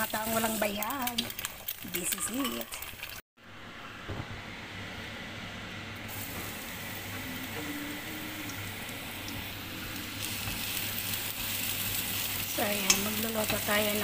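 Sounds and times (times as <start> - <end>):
oil sizzling in a frying pan: 0.0 - 3.2, 6.1 - 14.0.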